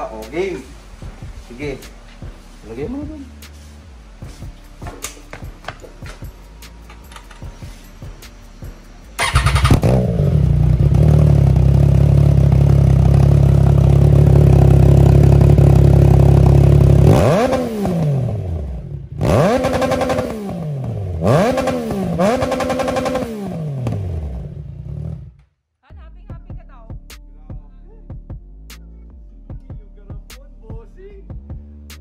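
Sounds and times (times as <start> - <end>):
motorcycle engine idling and revving: 2.2 - 25.4.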